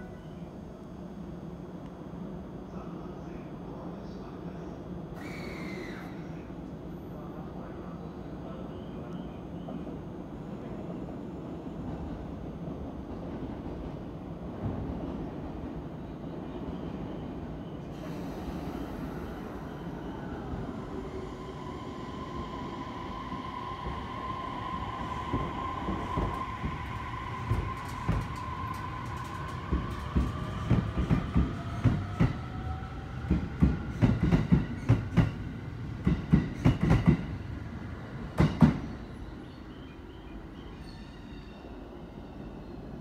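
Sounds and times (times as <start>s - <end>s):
electric train whine: 0.0s - 43.0s.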